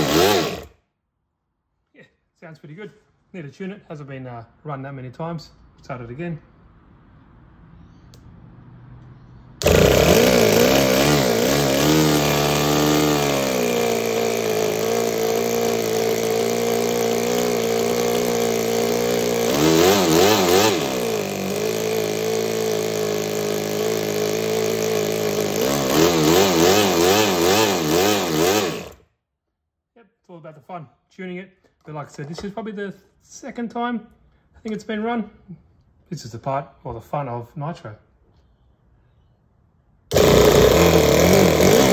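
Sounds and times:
model engine running: 0:00.0 - 0:00.7, 0:09.6 - 0:29.0, 0:40.1 - 0:41.9.

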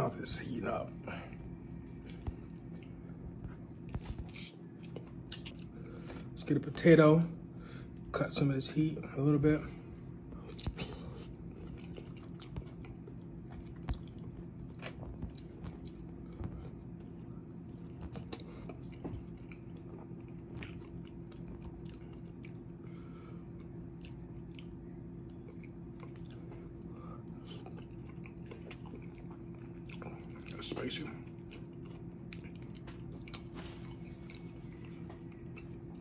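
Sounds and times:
low hum: 0:00.0 - 0:36.0
person chewing: 0:01.3 - 0:06.4, 0:10.4 - 0:36.0.

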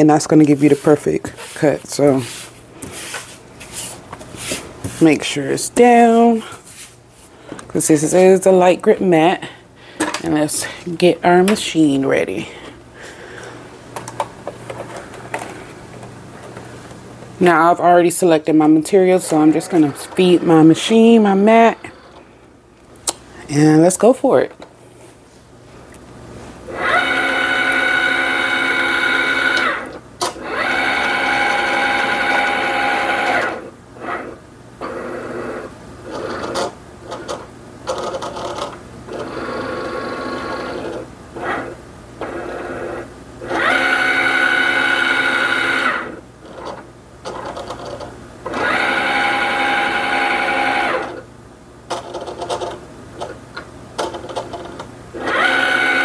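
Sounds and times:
cutting machine motors whirring: 0:26.7 - 0:36.6, 0:39.1 - 0:46.8, 0:55.2 - 0:56.0.

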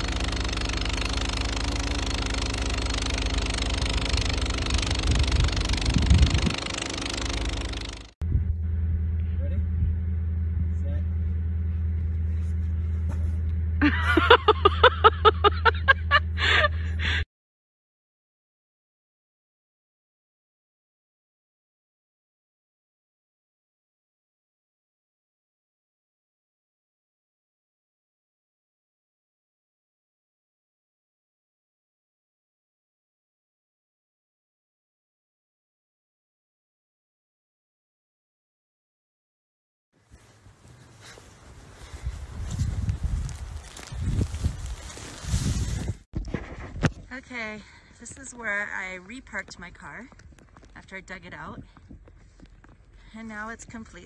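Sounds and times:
low rumble: 0:08.2 - 0:17.2
breathy bursts: 0:16.4 - 0:17.2.

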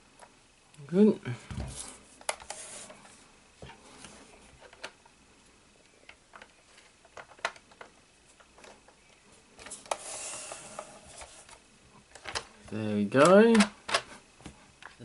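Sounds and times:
plastic parts clicking: 0:06.0 - 0:09.0, 0:09.6 - 0:14.1.

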